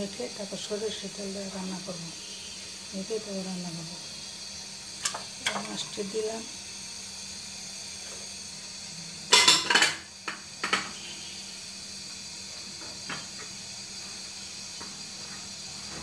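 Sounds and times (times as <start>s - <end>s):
metal utensils clattering on a pot: 5.0s - 5.9s, 9.3s - 10.0s.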